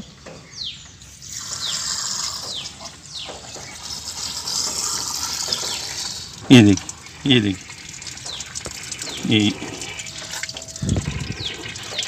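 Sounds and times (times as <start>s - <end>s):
bird chirping: 0.0s - 4.7s, 8.1s - 12.0s
water running: 1.2s - 12.0s.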